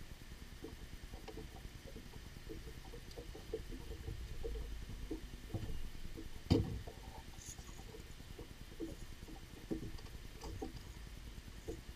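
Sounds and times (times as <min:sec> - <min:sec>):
water slapping boat: 0:00.2 - 0:11.9
knocks on boat hull: 0:05.1 - 0:07.0.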